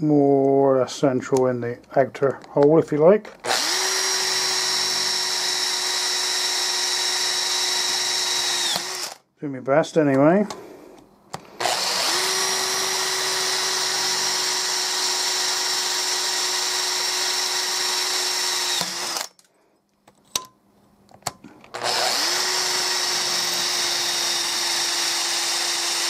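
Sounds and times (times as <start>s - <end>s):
electric drill whining: 3.4s - 9.3s, 11.4s - 19.4s, 21.7s - 26.0s.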